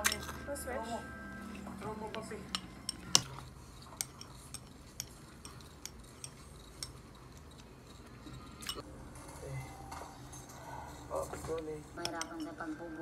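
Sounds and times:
spoon clinking glass bowl: 0:00.0 - 0:00.4, 0:01.4 - 0:07.2, 0:08.6 - 0:08.8, 0:12.0 - 0:12.6.

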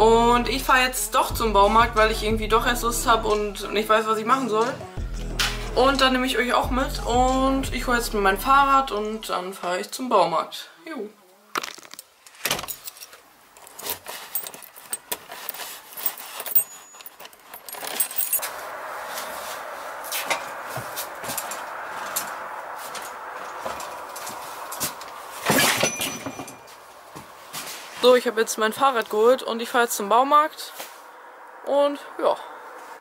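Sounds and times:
door and bicycle rattles: 0:12.4 - 0:13.0, 0:23.5 - 0:26.7
keys jangling: 0:12.6 - 0:18.4.

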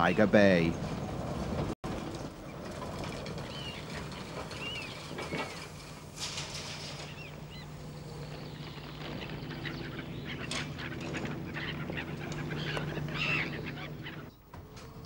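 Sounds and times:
trolleybus humming: 0:00.0 - 0:15.0
short bird calls: 0:06.9 - 0:14.4.

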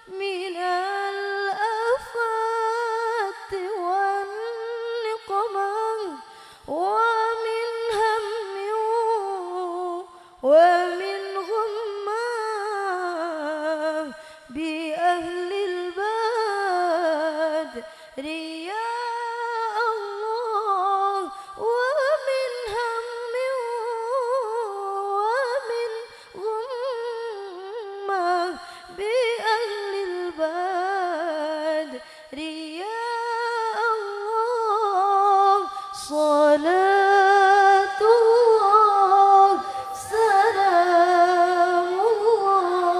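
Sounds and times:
woman singing unaccompanied: 0:00.0 - 0:42.9
singer breathing: 0:06.2 - 0:06.7, 0:10.1 - 0:10.4, 0:14.1 - 0:14.5, 0:17.8 - 0:18.2, 0:21.3 - 0:21.6, 0:26.1 - 0:26.4, 0:28.6 - 0:29.0, 0:32.0 - 0:32.4, 0:35.7 - 0:36.0, 0:39.6 - 0:40.0.

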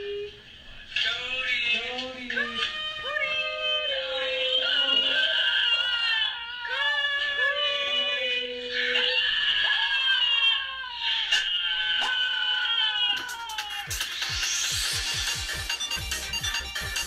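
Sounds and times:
dog howling: 0:02.4 - 0:13.9.

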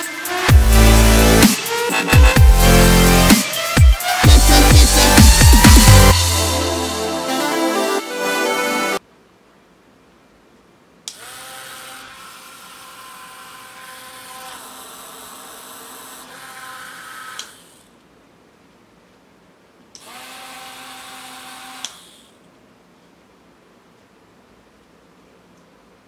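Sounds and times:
small fan motor whining: 0:11.1 - 0:18.0, 0:20.0 - 0:22.5.

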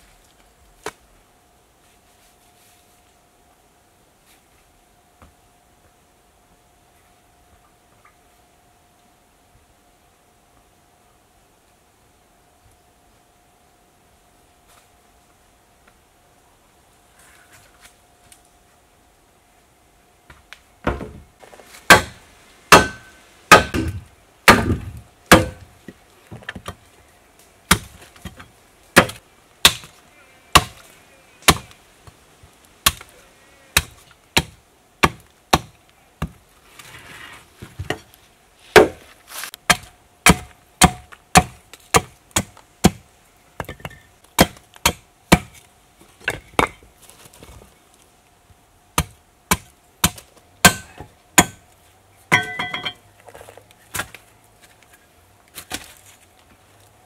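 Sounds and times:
machete chopping wood: 0:21.9 - 0:25.7, 0:27.7 - 0:28.4, 0:29.0 - 0:29.9, 0:32.8 - 0:33.1, 0:33.8 - 0:36.4, 0:38.8 - 0:39.0, 0:39.7 - 0:43.0, 0:44.4 - 0:45.6, 0:49.0 - 0:51.6.

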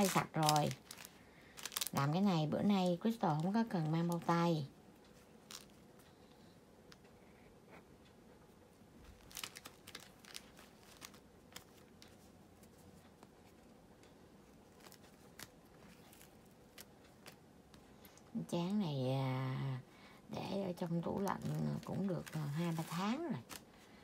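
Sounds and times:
wrapper sheets crackling: 0:00.0 - 0:05.8, 0:09.1 - 0:12.2, 0:14.6 - 0:17.4, 0:20.7 - 0:23.9
room hum: 0:00.0 - 0:24.0.

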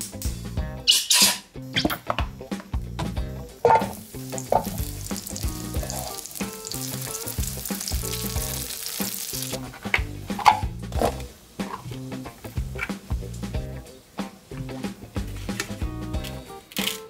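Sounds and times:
cutlets sizzling in hot oil: 0:03.6 - 0:15.3.

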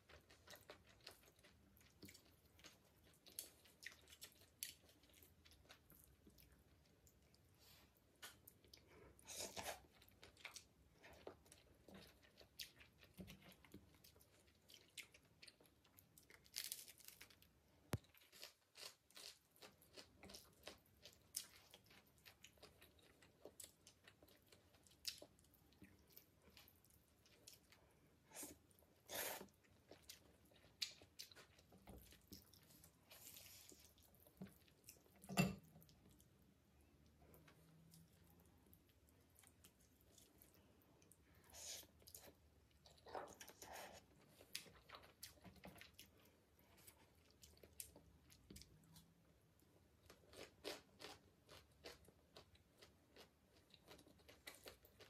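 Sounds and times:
chewing and crunchy bites: 0:00.0 - 0:07.4, 0:08.2 - 0:27.8, 0:28.4 - 0:36.4, 0:49.8 - 0:55.0.

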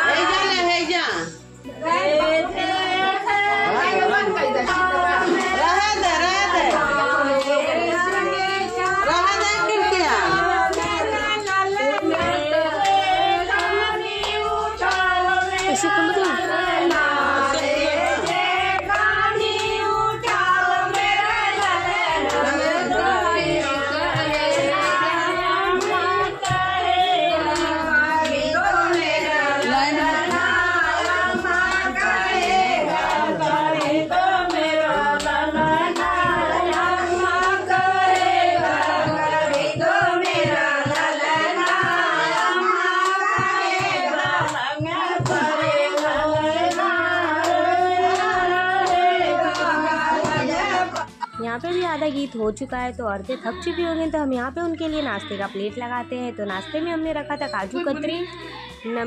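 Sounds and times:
women singing together: 0:00.0 - 0:59.0
hands clapping in time: 0:27.3 - 0:51.4.

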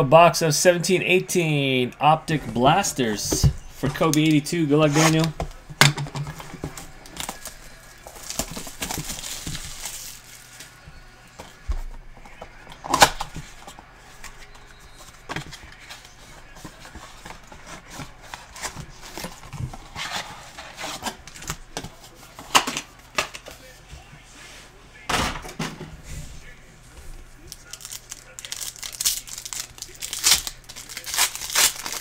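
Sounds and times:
cellophane crinkling: 0:06.3 - 0:10.8, 0:27.4 - 0:32.0
foil packs being handled: 0:06.3 - 0:10.8, 0:27.4 - 0:32.0.

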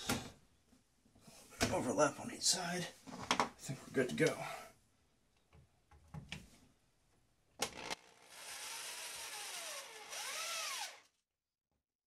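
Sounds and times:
cordless drill motor whine: 0:07.7 - 0:11.2.

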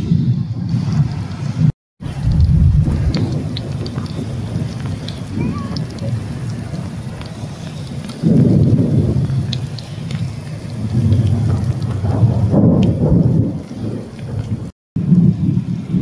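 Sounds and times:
water rushing over rocks: 0:02.0 - 0:14.7.

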